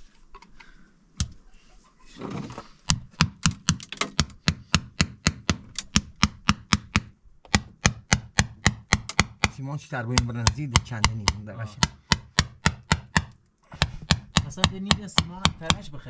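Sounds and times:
hammer tapping stones: 0:02.9 - 0:16.0.

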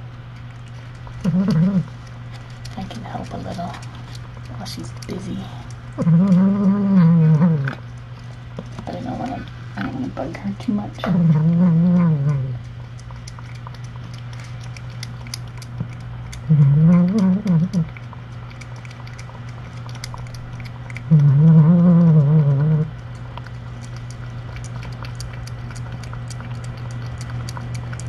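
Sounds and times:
electrical hum: 0:00.0 - 0:28.0
low wavering cat calls: 0:01.2 - 0:02.0, 0:06.0 - 0:07.8, 0:11.0 - 0:12.7, 0:16.4 - 0:18.0, 0:21.0 - 0:23.0.

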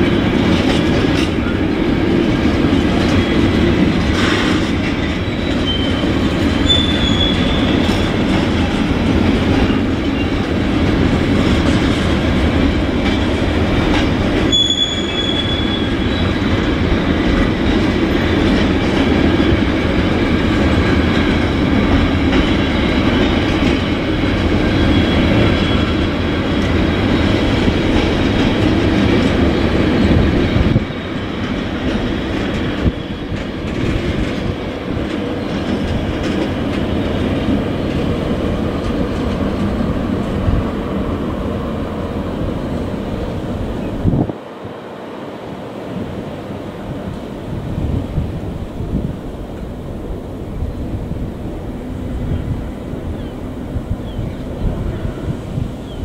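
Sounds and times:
freight train rolling past: 0:00.0 - 0:56.0
high wheel squeals: 0:05.0 - 0:08.2, 0:14.4 - 0:16.6, 0:24.6 - 0:26.1.

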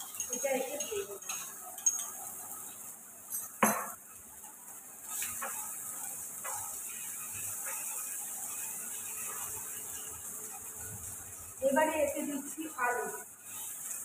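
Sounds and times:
paste sizzling in hot oil: 0:00.0 - 0:14.0
spoon knocking on container: 0:03.6 - 0:04.0
spatula scraping a pan: 0:05.0 - 0:10.6.

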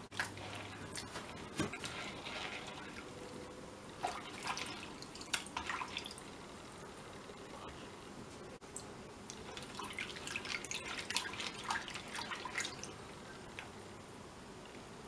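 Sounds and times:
hands swishing raisins in water: 0:00.1 - 0:03.1
small splashes and drips: 0:04.0 - 0:06.3, 0:08.7 - 0:13.0.

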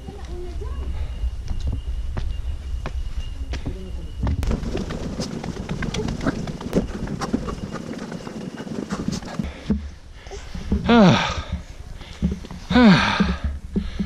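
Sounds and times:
wind rumbling on microphone: 0:00.0 - 0:14.0
footsteps on metal stairs: 0:02.2 - 0:10.0, 0:10.6 - 0:14.0.

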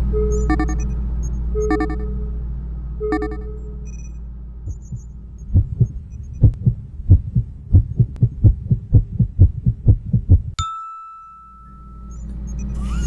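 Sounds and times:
steady high tone: 0:00.0 - 0:04.0
cartoon heartbeat thumps: 0:04.7 - 0:10.6.

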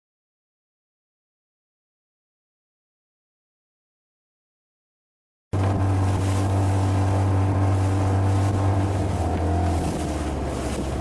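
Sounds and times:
motorboat engine humming: 0:05.6 - 0:11.0
water noise: 0:05.6 - 0:11.0
wind: 0:05.6 - 0:11.0.

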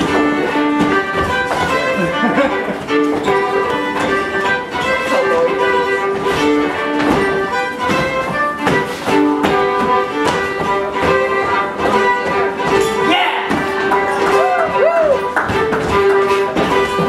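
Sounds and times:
live dance tune: 0:00.0 - 0:17.0.

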